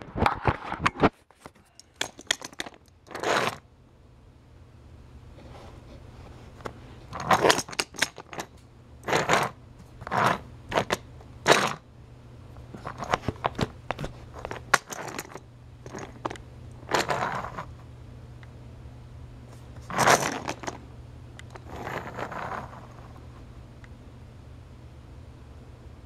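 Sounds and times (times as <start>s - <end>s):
low steady hum: 0.0s - 26.0s
plastic toy clattering and scraping: 0.2s - 3.6s, 6.6s - 11.8s, 12.8s - 17.7s, 19.8s - 20.8s, 21.4s - 23.0s.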